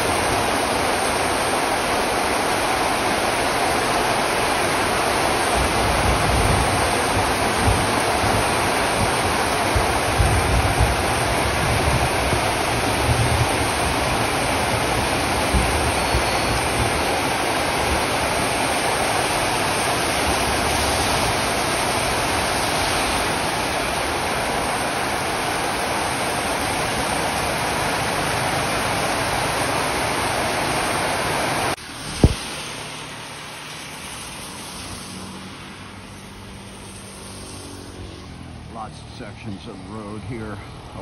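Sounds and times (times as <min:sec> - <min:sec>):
heavy rain on street and awning: 0:00.0 - 0:39.2
sharp knock: 0:32.2 - 0:32.4.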